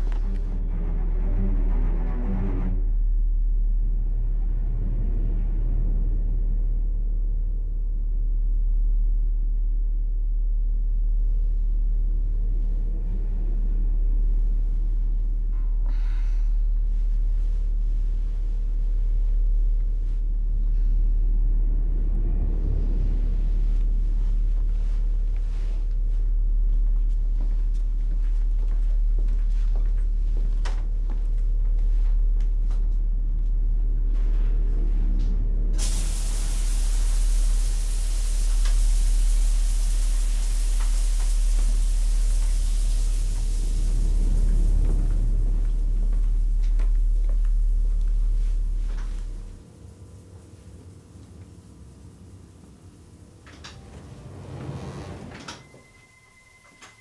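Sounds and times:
deep bass drone: 0:00.0 - 0:55.7
faint steady hum: 0:03.0 - 0:57.0
loud static hiss: 0:35.8 - 0:55.9.

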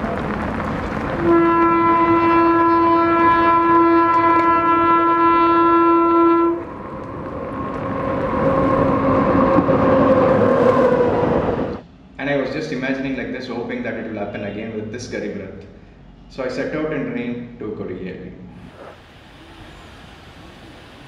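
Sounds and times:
train running rumble: 0:00.0 - 0:11.8
train horn blast: 0:01.2 - 0:07.0
heavy rain hissing: 0:18.6 - 0:21.0.

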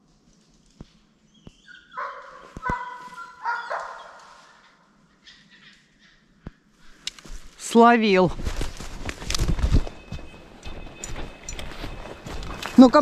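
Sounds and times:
dog barking: 0:01.8 - 0:04.6.

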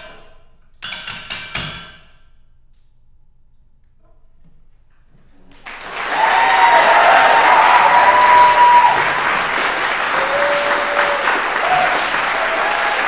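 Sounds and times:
audience applause: 0:05.6 - 0:13.0
long high calls: 0:06.1 - 0:13.0.

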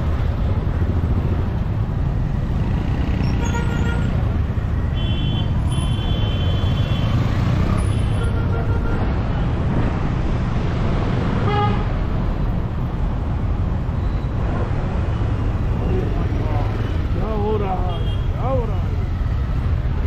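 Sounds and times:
traffic rumble: 0:00.0 - 0:20.0
vehicle horns honking: 0:03.2 - 0:04.2, 0:05.0 - 0:07.2, 0:07.8 - 0:09.1, 0:11.4 - 0:11.9.

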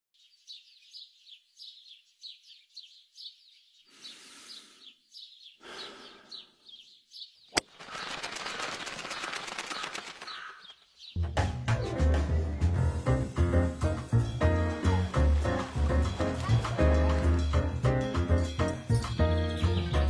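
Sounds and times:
small birds chirping: 0:00.2 - 0:11.3.

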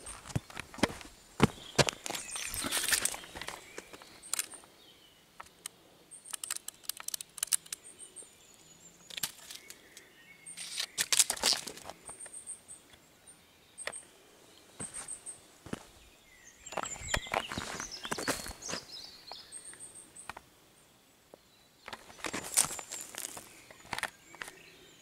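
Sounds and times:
crackles and scuffs: 0:00.0 - 0:04.7, 0:10.6 - 0:12.3, 0:16.6 - 0:19.5, 0:21.8 - 0:24.7
footsteps in dry grass and gravel: 0:00.0 - 0:04.7, 0:10.6 - 0:12.2, 0:14.7 - 0:19.6, 0:21.8 - 0:24.7.

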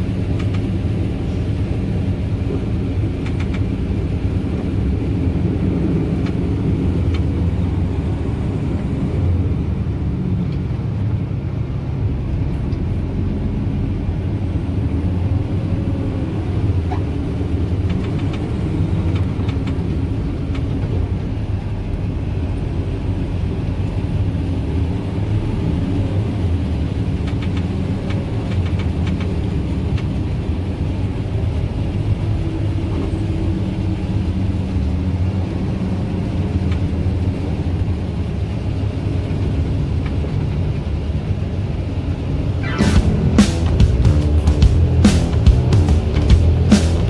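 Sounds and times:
sharp clicks and knocks: 0:03.2 - 0:03.7
tractor engine rumble: 0:36.4 - 0:47.0.

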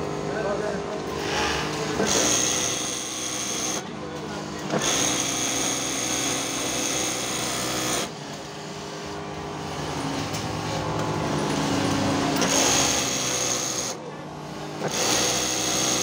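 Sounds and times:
sewing machine stitching: 0:01.2 - 0:03.8, 0:11.5 - 0:13.9.

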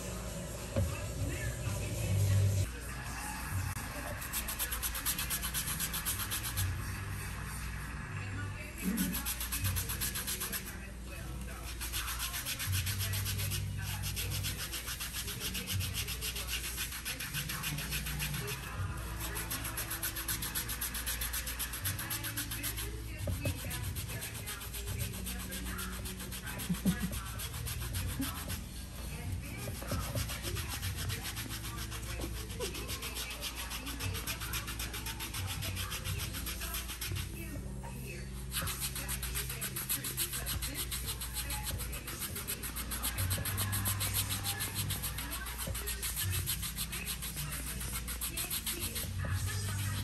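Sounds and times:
hands rubbing skin: 0:11.7 - 0:37.3, 0:38.5 - 0:50.0.

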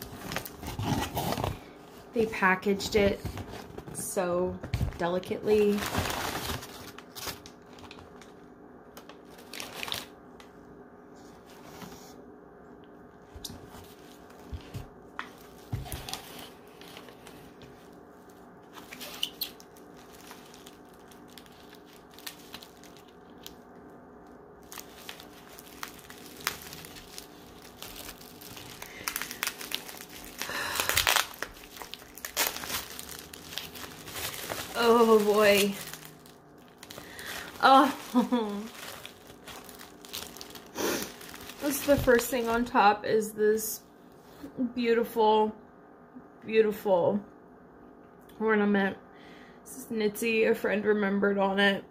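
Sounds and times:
packing paper rustling: 0:00.0 - 0:02.2, 0:02.9 - 0:10.5, 0:13.3 - 0:42.8.

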